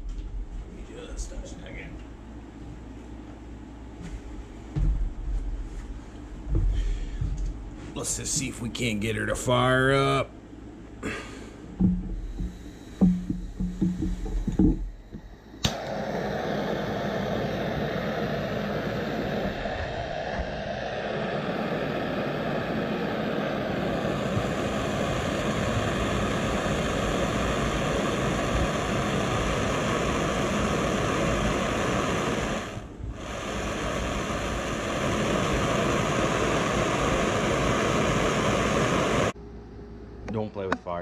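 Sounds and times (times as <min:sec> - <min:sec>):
gas torch flame hissing: 0:11.0 - 0:39.4.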